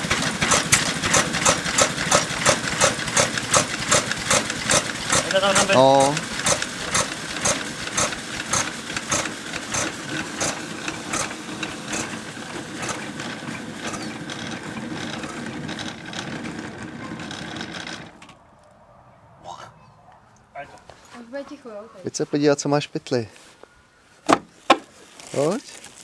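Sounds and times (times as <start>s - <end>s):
engine clacking while running down: 0.0s - 18.3s.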